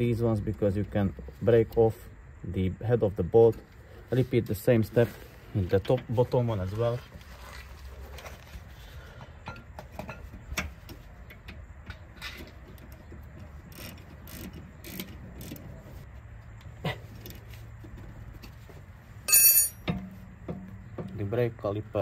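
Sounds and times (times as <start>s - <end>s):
metal tools clinking: 19.3s - 20.1s.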